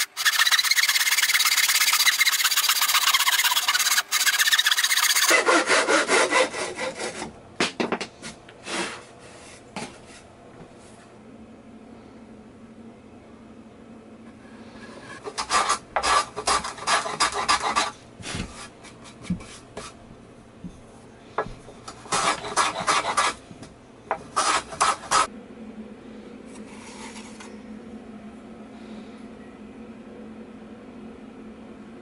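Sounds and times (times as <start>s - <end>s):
rasping on wood block: 0.0s - 7.3s, 15.2s - 17.9s, 22.0s - 23.4s, 24.3s - 25.3s.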